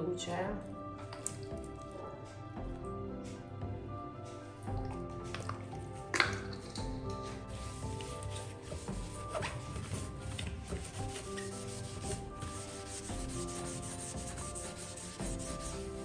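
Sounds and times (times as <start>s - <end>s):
background music: 0.0s - 16.0s
sponge scrubbing a sink: 7.2s - 16.0s.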